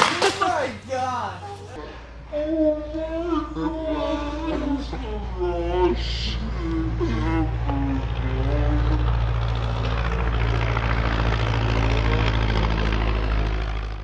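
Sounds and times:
propeller airplane engine drone: 3.9 - 14.0.

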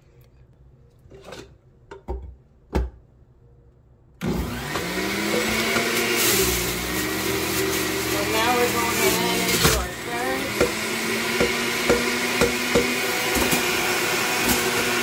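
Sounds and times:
carrots grinding in juicer: 4.2 - 15.0
juicer motor whining: 4.2 - 15.0.

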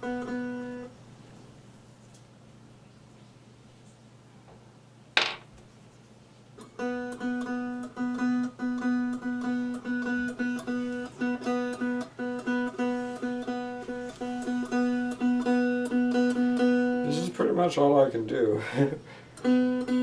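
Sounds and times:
one-string instrument plucked: 6.6 - 17.1, 19.4 - 20.0.

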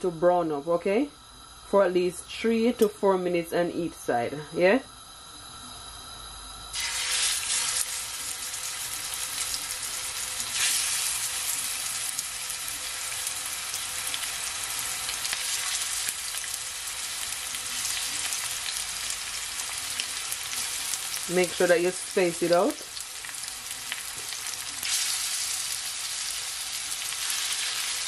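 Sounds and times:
chicken sizzling in hot oil: 6.7 - 28.0.

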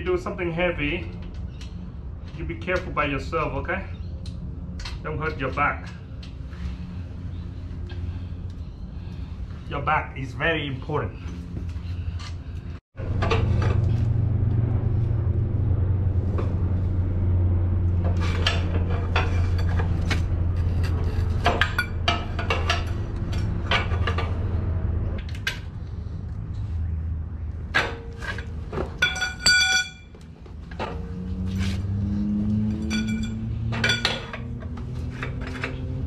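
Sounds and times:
steady low hum: 10.6 - 27.6
metal tools knocking and clicking: 29.0 - 30.1, 32.8 - 34.5
ringing metallic clinks: 29.0 - 30.2, 32.8 - 34.1.

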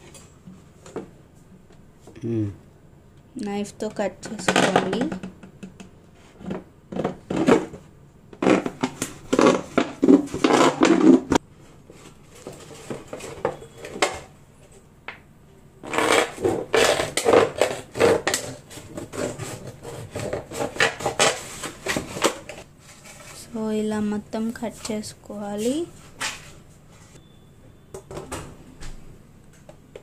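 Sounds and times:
plastic bottle crackling: 8.4 - 11.4.

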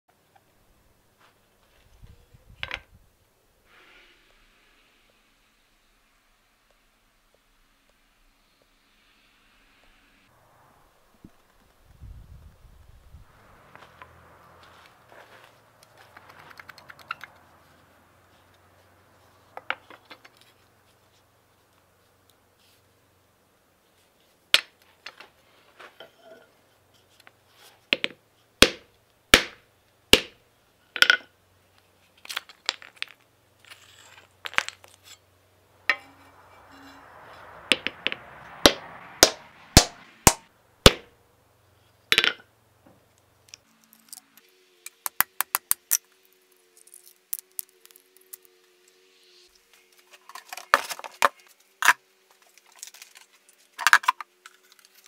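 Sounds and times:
soft scraping: 10.4 - 21.3, 33.6 - 40.2.

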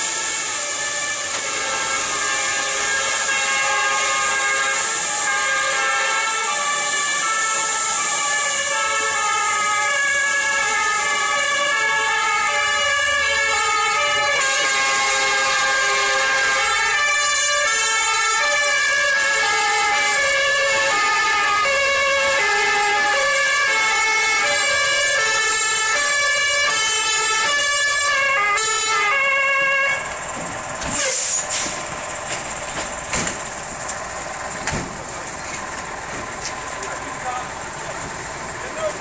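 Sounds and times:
fire engine siren: 0.0 - 39.0
truck engine running: 0.0 - 39.0.

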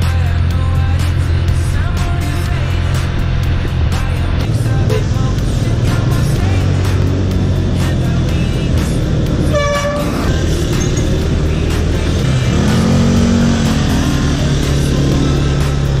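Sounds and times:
low traffic hum: 0.0 - 16.0
music with steady beat: 0.0 - 16.0
vehicle horn toot: 4.9 - 5.2, 9.4 - 10.4.

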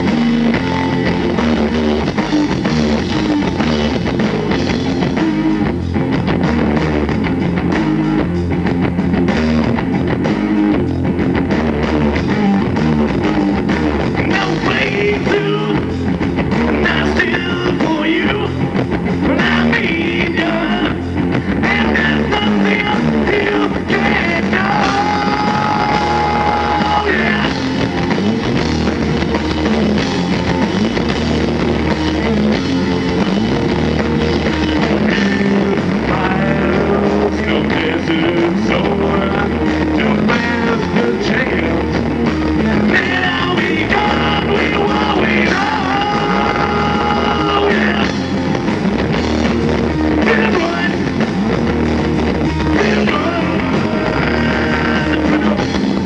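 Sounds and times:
live rock band playing: 0.0 - 56.0
person singing: 14.2 - 27.8, 34.8 - 48.3, 50.1 - 51.3, 52.6 - 56.0.

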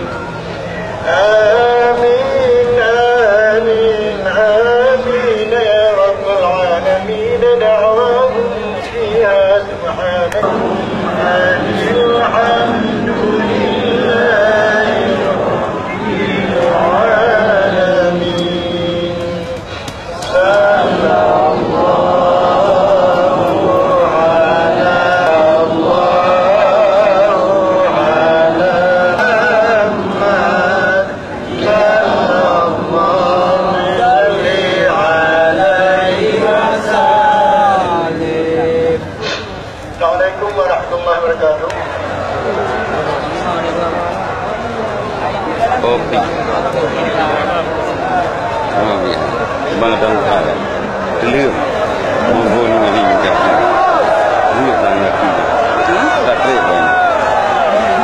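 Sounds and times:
person chanting a slow melody: 0.0 - 39.6.

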